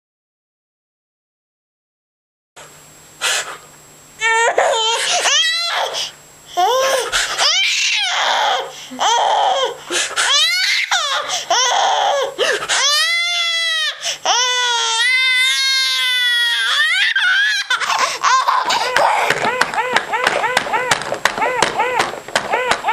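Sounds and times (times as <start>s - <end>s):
baby laughing and squealing: 4.2s - 6.0s, 6.6s - 22.9s.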